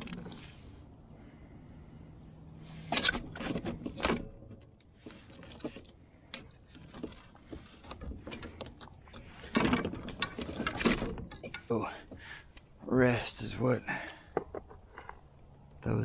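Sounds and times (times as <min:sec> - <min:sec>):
rustling: 0:00.0 - 0:12.7.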